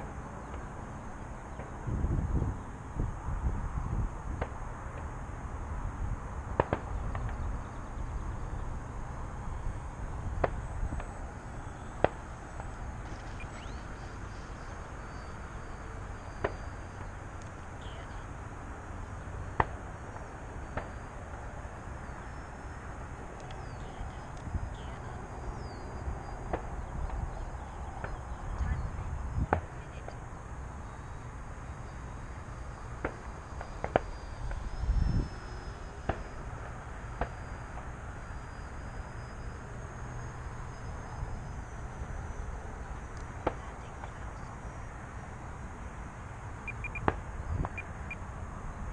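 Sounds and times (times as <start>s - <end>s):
wind buffeting microphone: 1.7s - 16.2s, 23.0s - 30.4s, 33.8s - 36.9s
faint high chirps: 13.0s - 17.2s, 46.6s - 48.2s.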